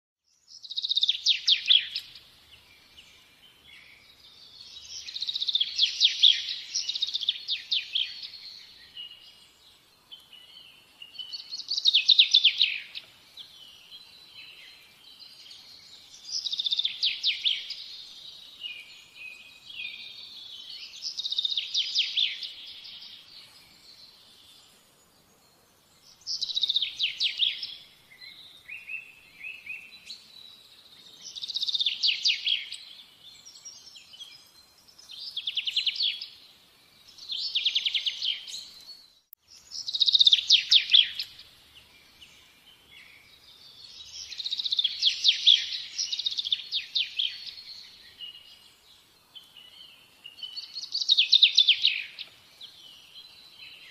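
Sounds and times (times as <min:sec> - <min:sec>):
bird twittering softly: 0:00.3 - 0:53.9
songbird trilling: 0:11.1 - 0:13.8, 0:39.6 - 0:41.4, 0:43.9 - 0:48.4, 0:50.3 - 0:52.2.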